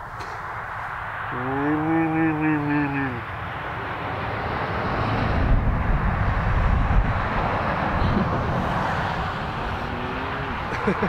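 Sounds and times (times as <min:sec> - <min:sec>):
vehicle passing on highway: 0:00.0 - 0:11.0
wind buffeting microphone: 0:03.2 - 0:11.0.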